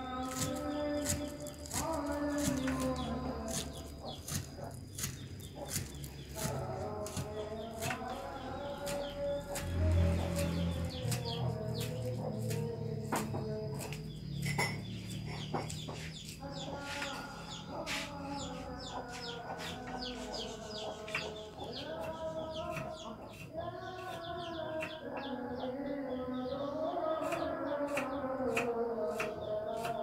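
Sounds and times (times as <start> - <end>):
knife chopping on wooden board: 0.2 - 8.2, 10.7 - 14.0, 27.2 - 30.0
chickens clucking: 0.2 - 30.0.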